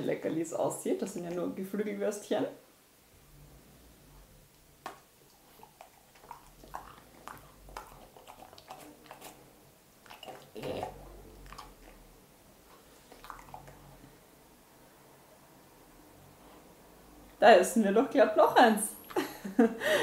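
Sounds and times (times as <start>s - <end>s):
dog crunching treats: 4.8s - 12.0s.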